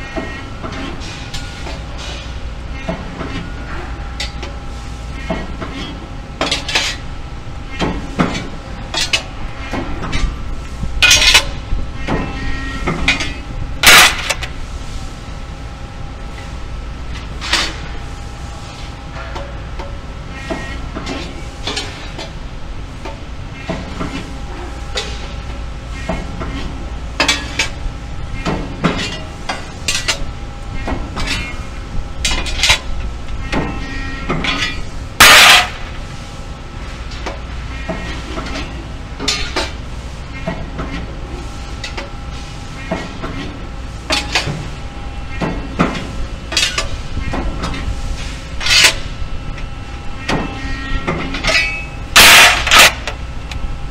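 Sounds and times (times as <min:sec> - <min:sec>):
sheet metal clanking: 0:34.4 - 0:36.0, 0:51.4 - 0:53.1.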